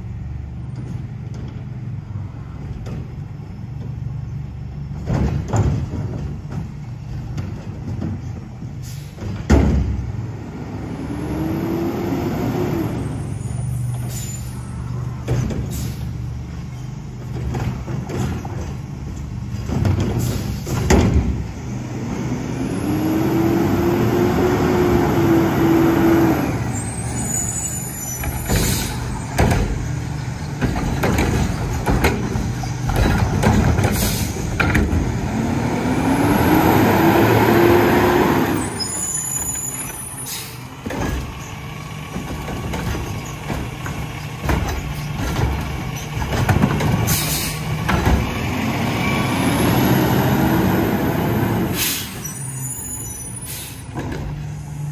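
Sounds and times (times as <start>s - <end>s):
diesel engine running: 0.0s - 54.9s
metal clanks and bangs: 4.9s - 10.2s, 28.1s - 35.2s, 40.8s - 48.6s.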